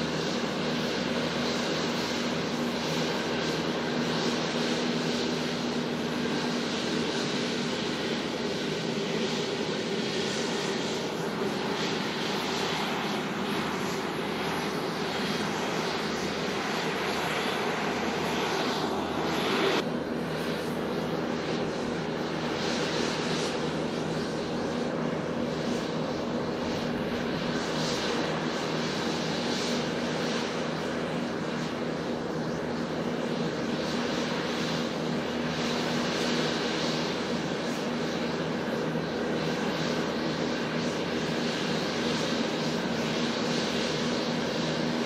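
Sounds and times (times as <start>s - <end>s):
jet engines roaring: 0.0s - 45.0s.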